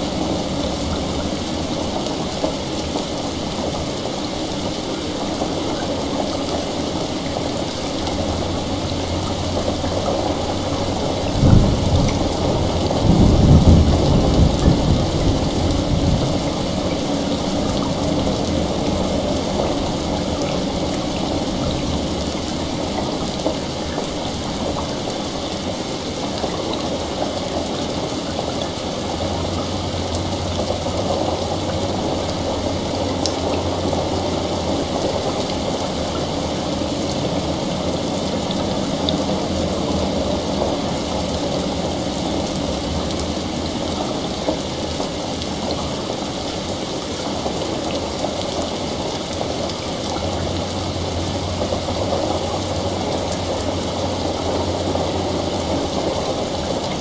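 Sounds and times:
heavy rain: 0:00.0 - 0:57.0
low even rumble: 0:06.5 - 0:44.5.

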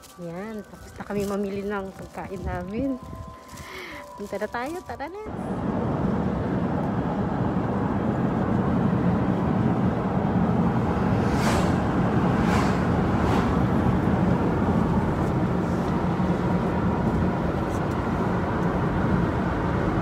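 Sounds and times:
car road and engine noise: 0:00.0 - 0:20.0
brief hissing swishes: 0:11.2 - 0:13.6.

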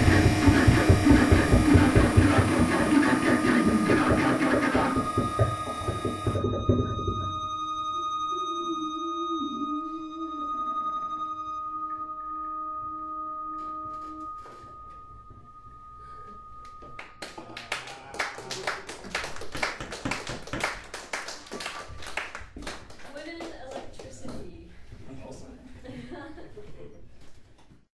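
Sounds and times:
droning music tones: 0:00.0 - 0:18.4
audience applauding: 0:17.0 - 0:24.0.

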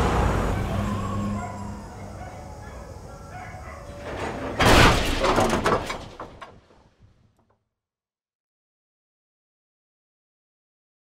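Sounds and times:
faint street traffic: 0:00.0 - 0:04.6
rattling clatter: 0:03.8 - 0:06.9
loud slam: 0:04.3 - 0:06.4.

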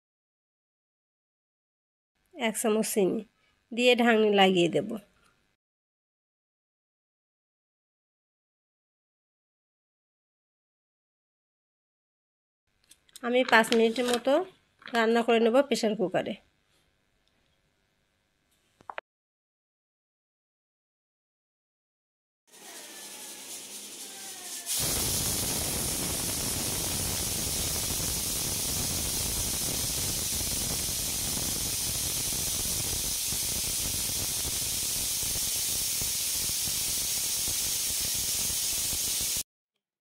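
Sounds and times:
pressure cooker steam hissing: 0:22.5 - 0:39.4.

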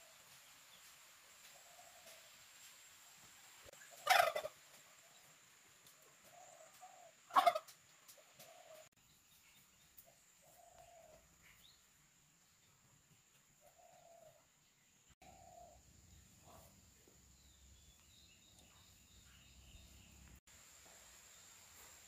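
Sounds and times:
turkey gobbling: 0:03.8 - 0:04.6, 0:06.8 - 0:07.8.

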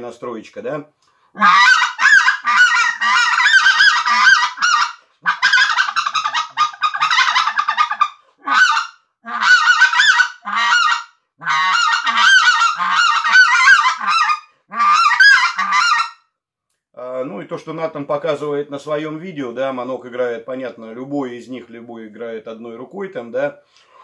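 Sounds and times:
goose call honks and clucks: 0:01.4 - 0:16.2.

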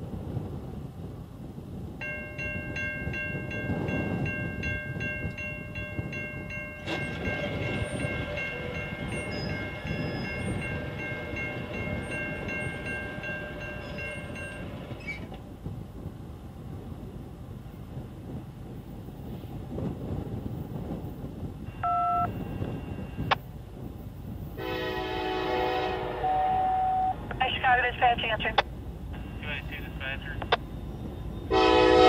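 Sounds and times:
wind rumble on microphone: 0:00.0 - 0:29.8
electronic crossing bell dinging: 0:02.0 - 0:14.7, 0:21.7 - 0:22.4.

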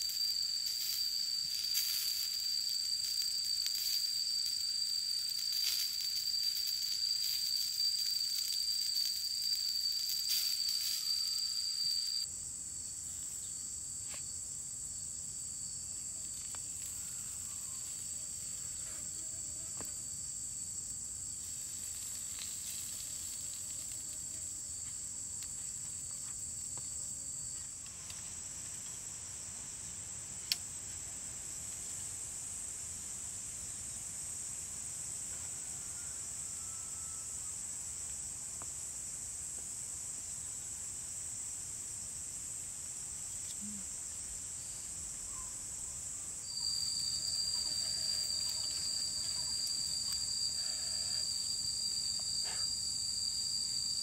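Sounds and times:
shrill insect buzzing: 0:00.0 - 0:12.3, 0:15.8 - 0:28.2, 0:46.3 - 0:54.0.

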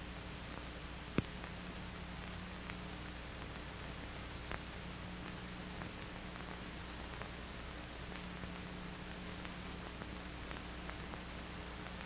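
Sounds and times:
film soundtrack hiss: 0:00.0 - 0:12.0
low mains hum: 0:00.0 - 0:12.0
faint clicks: 0:01.1 - 0:01.6.

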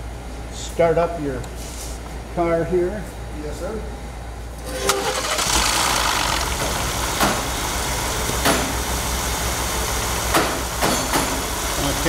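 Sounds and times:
engine starting and idling: 0:04.7 - 0:11.7.

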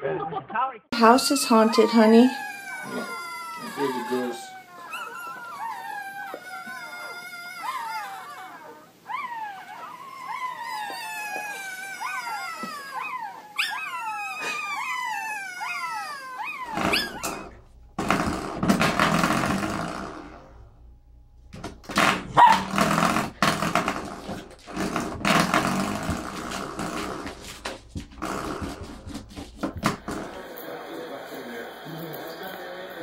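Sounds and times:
puppies whimpering and squealing: 0:01.0 - 0:17.6
puppy growling: 0:01.0 - 0:20.8, 0:21.8 - 0:33.0.

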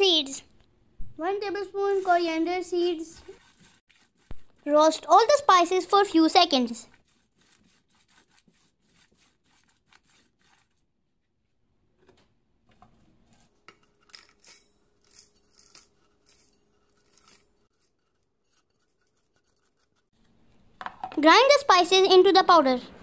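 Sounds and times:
wooden spatula stirring spices in pan: 0:01.6 - 0:10.7.

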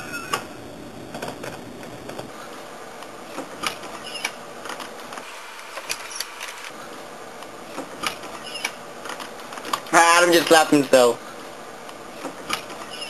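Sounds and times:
faint room hiss: 0:00.0 - 0:13.0.

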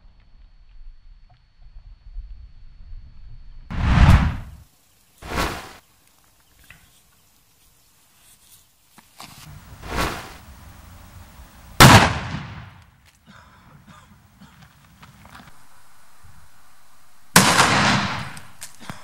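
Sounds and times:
firecracker bang: 0:03.7 - 0:04.6, 0:09.8 - 0:10.4, 0:11.8 - 0:12.8, 0:17.4 - 0:18.5
short firecracker bursts: 0:03.7 - 0:05.8, 0:09.5 - 0:10.6, 0:11.8 - 0:12.8, 0:17.4 - 0:18.8.

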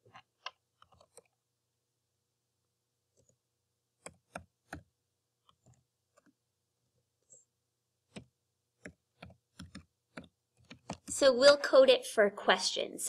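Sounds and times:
keyboard keystrokes: 0:08.1 - 0:11.2.

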